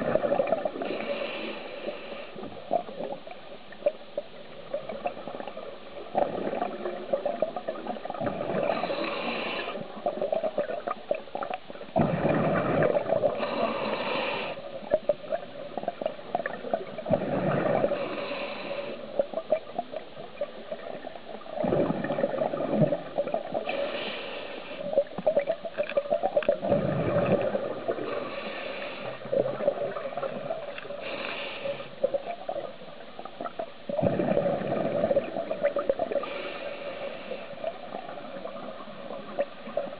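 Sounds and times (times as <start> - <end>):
diver inhaling through regulator: 0.8 - 2.4, 8.6 - 9.9, 12.2 - 14.7, 17.1 - 19.1, 23.6 - 24.9, 28.0 - 29.4, 31.0 - 32.0, 36.2 - 37.7
exhaled bubbles rushing: 4.7 - 8.8, 12.0 - 13.4, 15.3 - 18.1, 20.5 - 23.7, 25.3 - 28.3, 33.4 - 36.3.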